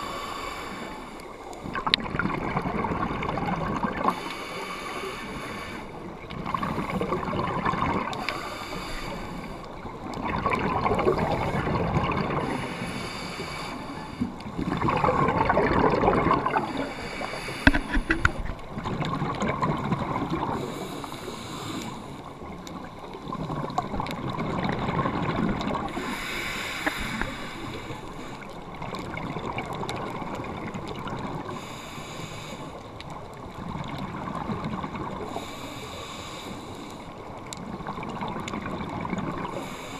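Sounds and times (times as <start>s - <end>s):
regulator inhale hiss: 0.0s - 1.8s, 4.0s - 7.2s, 8.1s - 9.8s, 11.3s - 14.4s, 16.6s - 18.6s, 20.5s - 22.4s, 25.9s - 28.8s, 31.4s - 33.0s, 35.2s - 37.4s, 39.5s - 39.9s
exhaled bubbles rushing: 1.6s - 4.2s, 6.2s - 8.2s, 9.9s - 12.6s, 14.4s - 17.0s, 17.6s - 20.6s, 22.8s - 26.0s, 28.8s - 31.6s, 37.7s - 39.6s.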